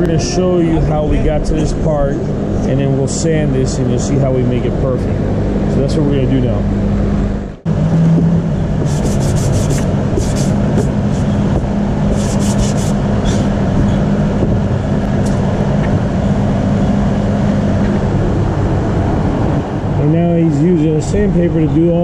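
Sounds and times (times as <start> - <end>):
steady machine hum: 0.0 - 22.0
sandpaper scratching surface: 8.8 - 11.4, 12.1 - 13.5.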